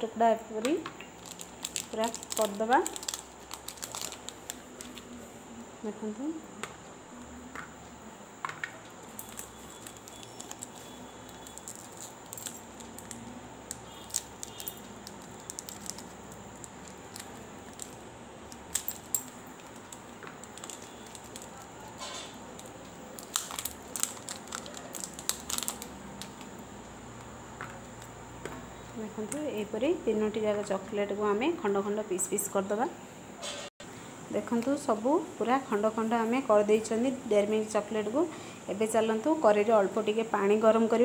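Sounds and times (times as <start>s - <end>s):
foil wrapper crinkling: 1.2s - 5.2s, 9.0s - 26.6s
chocolate bar snapping: 22.6s - 26.5s.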